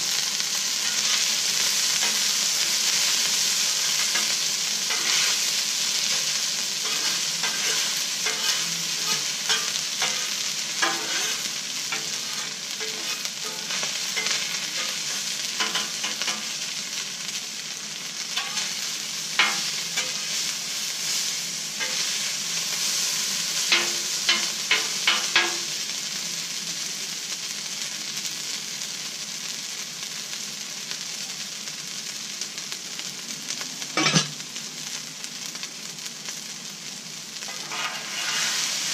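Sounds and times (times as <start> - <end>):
rice sizzling on a griddle: 0.0 - 38.9
metal spatula scraping and tapping: 3.8 - 5.4, 6.0 - 16.5, 18.4 - 18.8, 19.4 - 20.2, 23.7 - 25.6, 34.0 - 34.3, 37.5 - 38.7.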